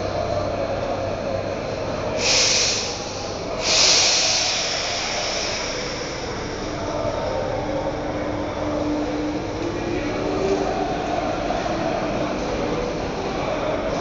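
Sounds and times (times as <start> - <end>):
steady low hum: 0.0 - 14.0
compressed-air hiss from train: 2.2 - 6.7.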